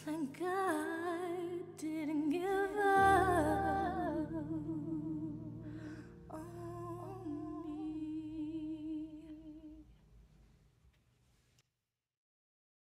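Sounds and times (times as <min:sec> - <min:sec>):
soft sustained backing: 0:00.0 - 0:10.0.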